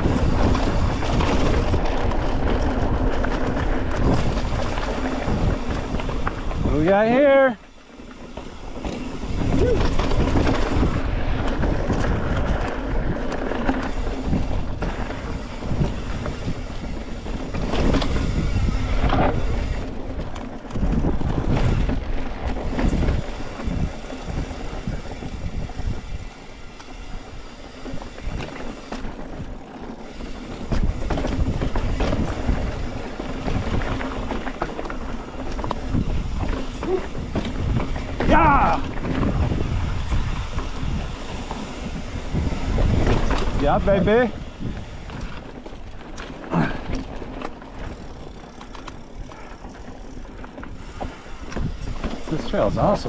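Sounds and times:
bike rattling and knocking: 0:00.0 - 0:53.0
wind buffeting microphone: 0:00.0 - 0:53.0
tyres rumbling over rock: 0:30.0 - 0:49.8.

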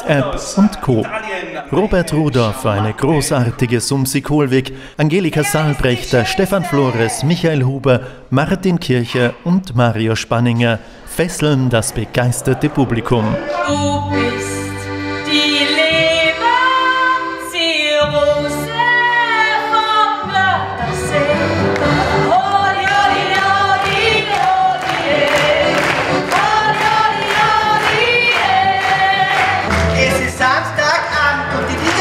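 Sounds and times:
people singing: 0:13.2 - 0:32.0.

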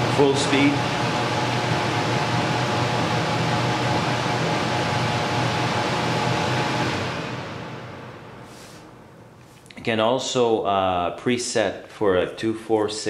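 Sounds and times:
air cleaner fan rushing: 0:00.0 - 0:09.9.

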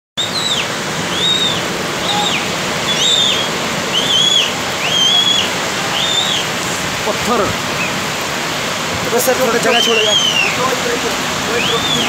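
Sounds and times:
high chirping call: 0:00.2 - 0:06.6, 0:09.6 - 0:10.8, 0:11.4 - 0:12.0
heavy rain: 0:00.2 - 0:12.0
rushing water: 0:00.2 - 0:12.0.

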